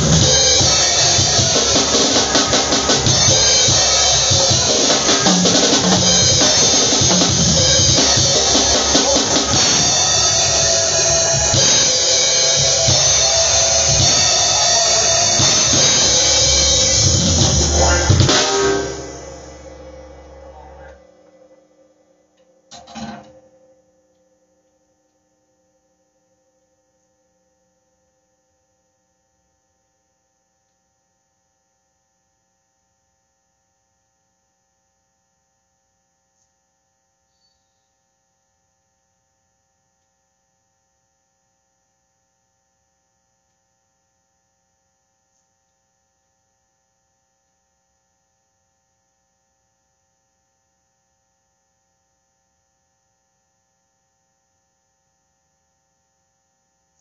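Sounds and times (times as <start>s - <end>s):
electrical hum: 0.0s - 22.8s.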